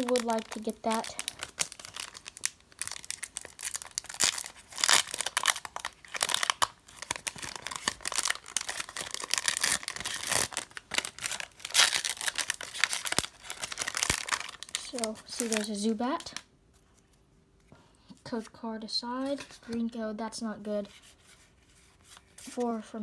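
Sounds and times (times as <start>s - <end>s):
foil wrapper crinkling and tearing: 0.0s - 16.4s.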